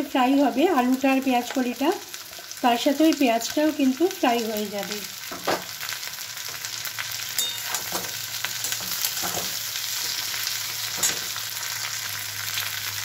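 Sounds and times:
food sizzling in hot oil: 0.0s - 13.0s
metal spatula scraping pan: 7.3s - 11.4s.

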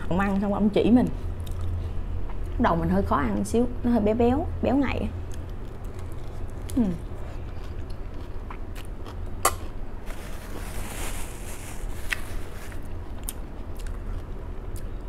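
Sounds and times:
person chewing crisp lettuce: 1.4s - 1.9s, 5.3s - 15.0s
tissue rustling: 10.0s - 12.9s.

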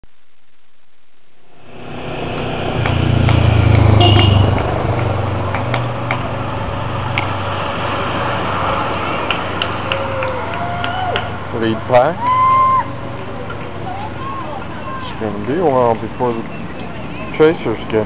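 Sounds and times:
bicycles rushing by: 1.5s - 18.0s
motorcycle engine passing: 1.6s - 10.5s.

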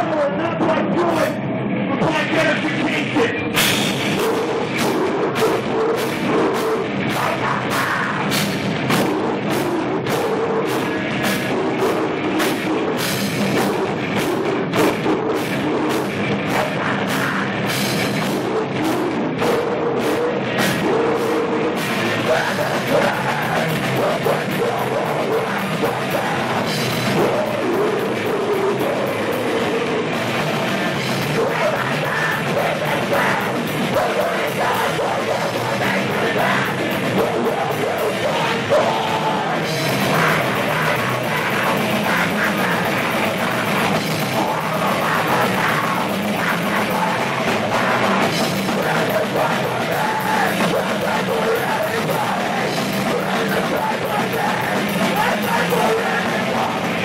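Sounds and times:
electric guitars: 0.0s - 57.0s
drum kit: 2.0s - 57.0s
person singing: 4.2s - 8.5s, 16.5s - 57.0s.

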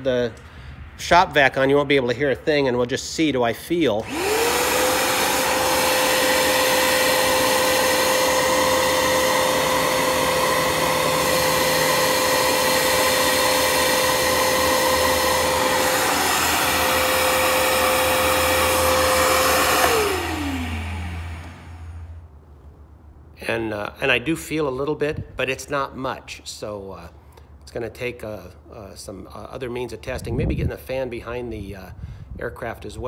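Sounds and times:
rushing air: 0.0s - 2.1s
shop vac motor whine: 3.9s - 22.3s.

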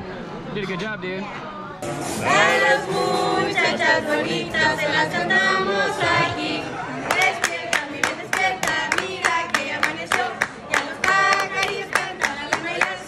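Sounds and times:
people singing together: 1.8s - 13.0s
hand clapping in time: 7.1s - 13.0s.

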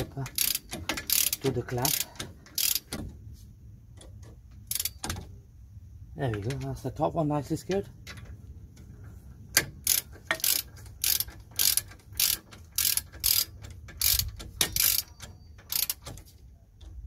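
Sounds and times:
ratchet wrench clicking: 0.0s - 3.0s, 4.6s - 5.2s, 9.5s - 16.3s.

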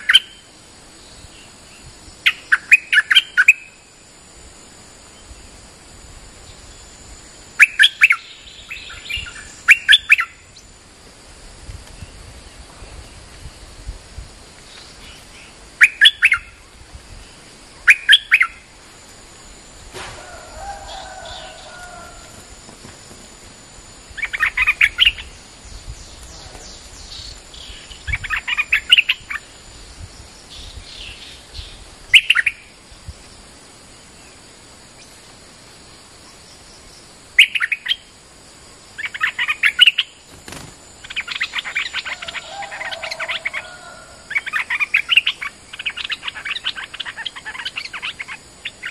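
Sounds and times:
bulbul singing: 7.6s - 10.7s, 14.8s - 16.6s, 17.8s - 18.7s
lower chattering bird call: 14.7s - 16.6s, 17.8s - 18.7s.

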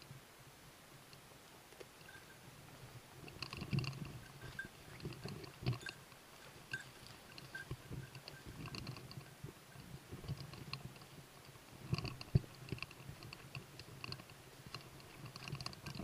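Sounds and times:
dog bell tinkling: 2.0s - 2.5s, 4.2s - 5.0s, 6.7s - 8.6s.

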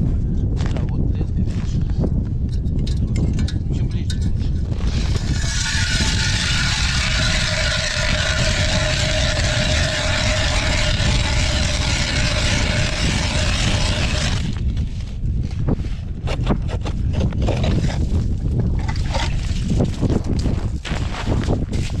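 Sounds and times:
wind rumbling on microphone: 0.0s - 22.0s
motor running: 4.9s - 14.6s
footsteps crunching in snow: 20.5s - 22.0s.

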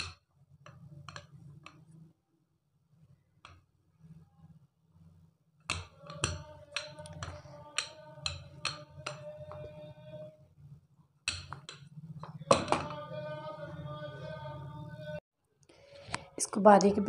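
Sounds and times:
background music with knocking beat: 5.7s - 9.8s, 11.3s - 13.9s.

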